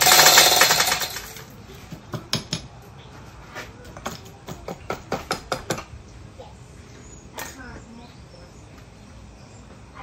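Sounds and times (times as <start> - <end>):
fast metallic rattling: 0.0 - 1.5.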